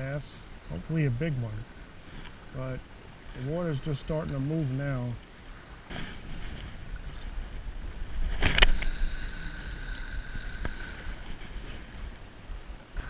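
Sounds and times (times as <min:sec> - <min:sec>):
fishing reel high whine: 0:08.6 - 0:11.3.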